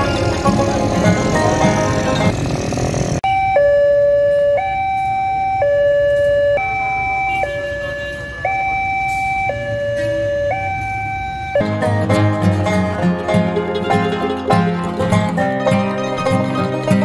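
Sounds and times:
two-tone crossing siren: 0:03.2 - 0:11.8.

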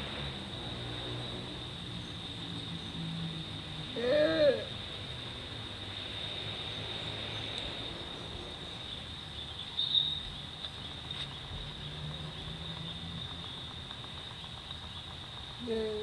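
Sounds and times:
insects droning: 0:00.0 - 0:16.0.

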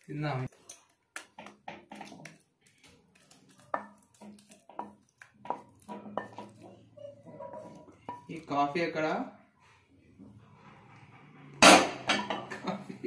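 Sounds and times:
spatula scraping a pan: 0:03.3 - 0:08.5.

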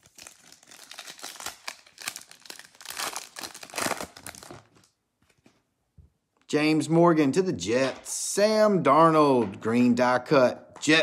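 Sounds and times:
foil wrapper crinkling and tearing: 0:00.0 - 0:04.9.

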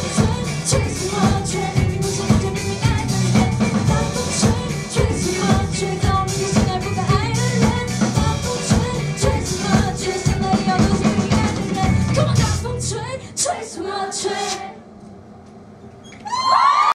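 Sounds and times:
live band playing: 0:00.0 - 0:12.8
person singing into microphone: 0:00.0 - 0:13.6.

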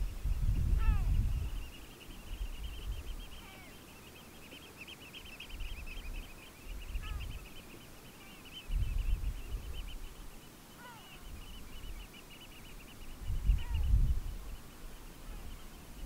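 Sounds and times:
wind rumble on microphone: 0:00.0 - 0:03.4, 0:05.5 - 0:07.5, 0:08.6 - 0:10.2, 0:13.0 - 0:16.0
birds chattering high piping notes: 0:00.0 - 0:16.0.

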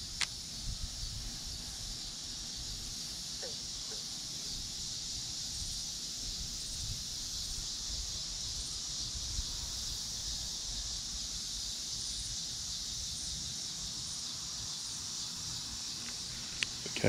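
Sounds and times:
wind rumble on microphone: 0:00.0 - 0:02.0, 0:05.5 - 0:11.0
insect chorus: 0:00.0 - 0:17.0.

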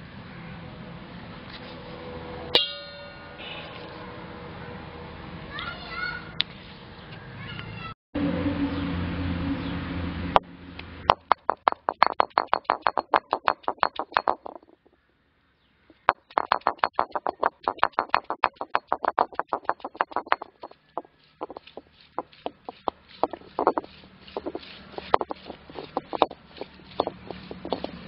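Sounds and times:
stone roller knocking on slab: 0:11.1 - 0:14.8, 0:15.9 - 0:28.0
steady noise: 0:21.4 - 0:28.0.

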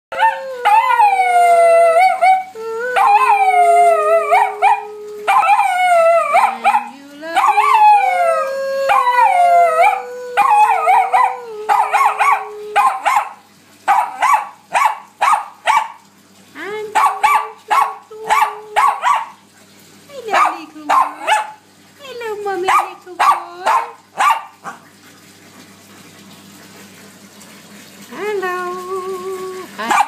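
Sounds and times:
dog howling: 0:00.1 - 0:13.4
dog yipping: 0:06.3 - 0:07.8, 0:09.8 - 0:16.0, 0:17.0 - 0:19.4, 0:20.3 - 0:21.6, 0:22.7 - 0:24.8, 0:29.8 - 0:30.0.

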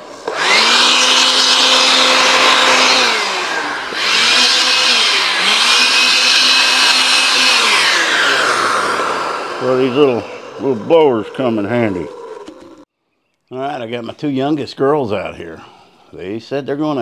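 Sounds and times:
cordless blower whining: 0:00.0 - 0:12.9.

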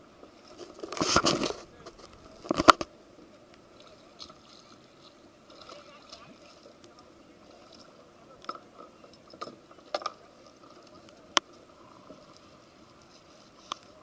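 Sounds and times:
camera handling clicks and rustles: 0:00.6 - 0:02.9.

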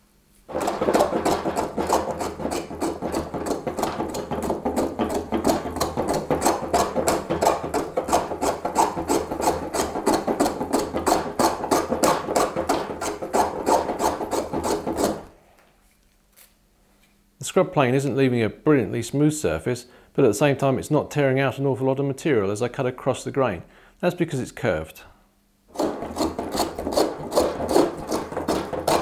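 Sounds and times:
hand plane rasping on wood: 0:00.5 - 0:15.3, 0:25.7 - 0:29.0.

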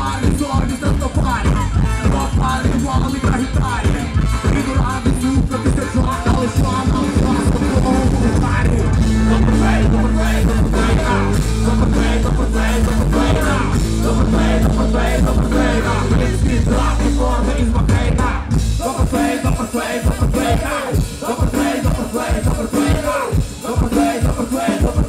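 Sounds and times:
live rock band with brass: 0:00.0 - 0:25.0
singer through pa: 0:00.0 - 0:25.0.

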